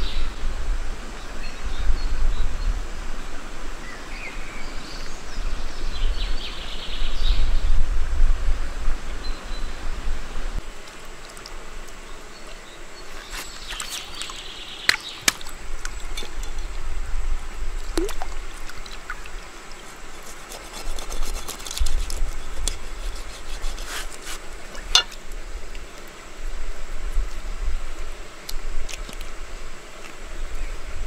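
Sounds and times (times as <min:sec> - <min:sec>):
stream water splashing: 0:10.6 - 0:26.2
blade scraping fish: 0:19.8 - 0:24.5.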